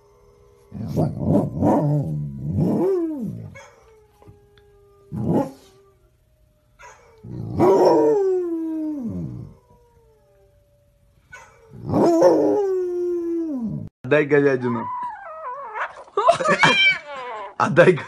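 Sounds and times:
dog yelp: 0:03.6 - 0:03.8, 0:06.8 - 0:07.1, 0:11.3 - 0:11.6, 0:14.6 - 0:17.6
dog howling: 0:14.5 - 0:17.6.

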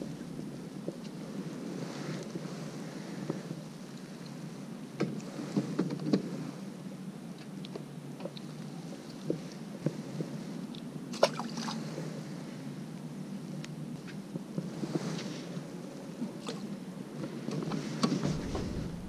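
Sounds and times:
low wind-like hiss: 0:00.0 - 0:19.0
small water splashes: 0:11.1 - 0:11.8.

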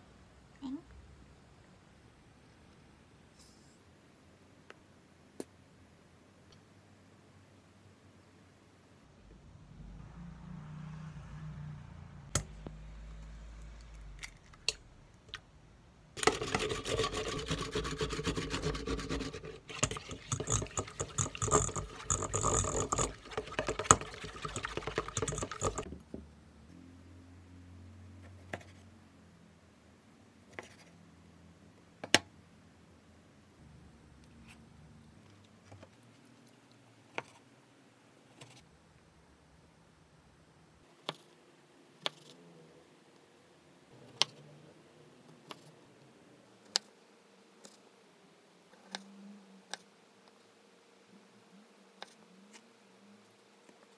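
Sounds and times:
eggs beaten in metal bowl: 0:16.2 - 0:25.9.

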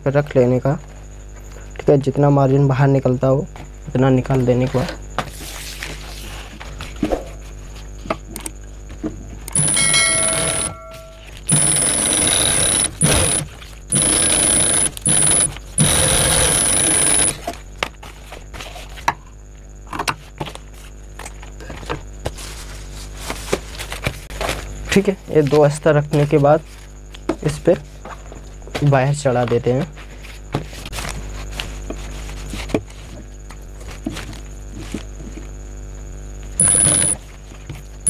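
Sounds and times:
sewing machine stitching: 0:09.5 - 0:10.7, 0:11.5 - 0:17.5, 0:36.6 - 0:37.2.

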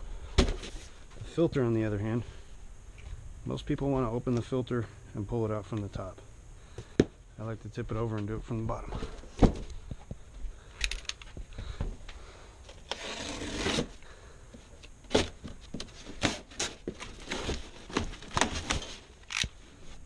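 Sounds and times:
cardboard scraping and rubbing: 0:12.8 - 0:14.0
box cutter slicing tape and cardboard: 0:12.9 - 0:14.0.

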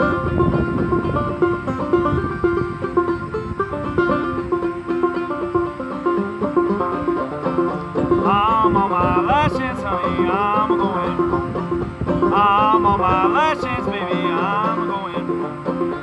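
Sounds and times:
banjo picking: 0:00.0 - 0:16.0.

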